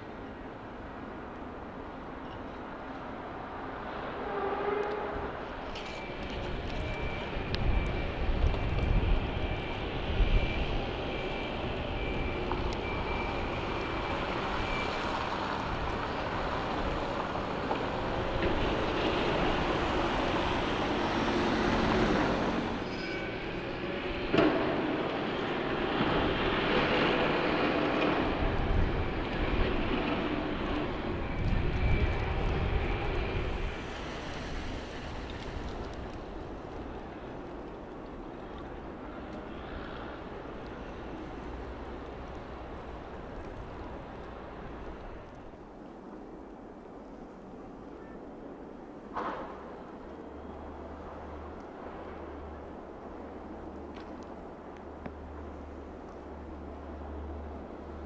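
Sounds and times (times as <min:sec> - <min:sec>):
wind buffeting microphone: 0:05.2 - 0:22.4, 0:25.1 - 0:45.6
car passing on slushy road: 0:13.8 - 0:22.8, 0:33.2 - 0:37.3.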